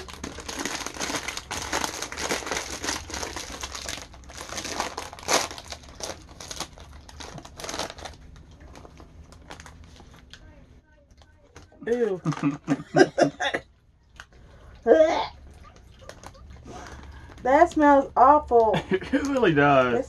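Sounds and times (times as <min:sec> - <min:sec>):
snack bag crackling and rustling: 0:00.0 - 0:12.8, 0:15.5 - 0:17.4.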